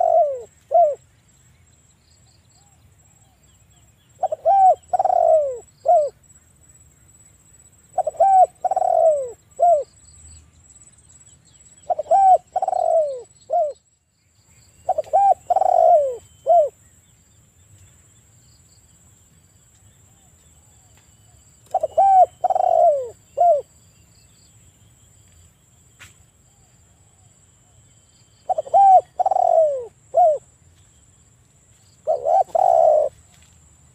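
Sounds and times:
dove cooing: 0.0s - 1.0s, 4.2s - 6.2s, 7.9s - 9.9s, 11.8s - 13.8s, 14.8s - 16.8s, 21.7s - 23.7s, 28.4s - 30.5s, 32.0s - 33.3s.

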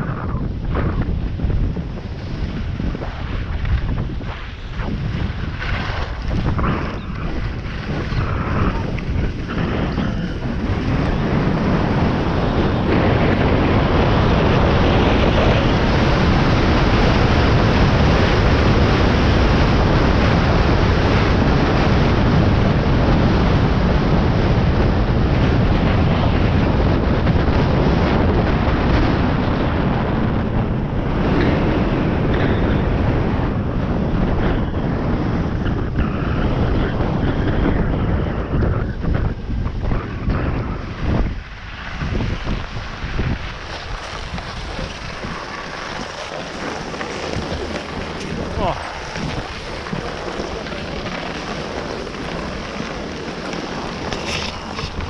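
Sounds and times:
wind rushing over microphone: 0.0s - 55.0s
skis hissing over snow: 41.8s - 55.0s.

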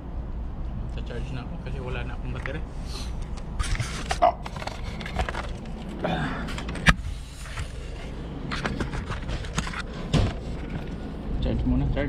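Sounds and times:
camera handling rustling: 3.2s - 11.0s.

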